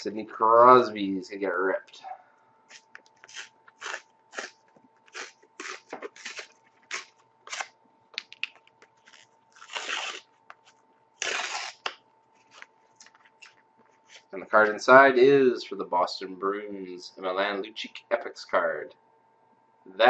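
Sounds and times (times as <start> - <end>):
thin cardboard ripping: 2.7 - 7.7, 9.0 - 12.7.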